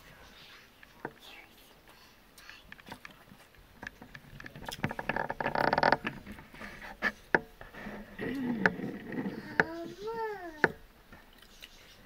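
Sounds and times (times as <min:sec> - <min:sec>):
rustling scrape: 0:05.0 - 0:10.0.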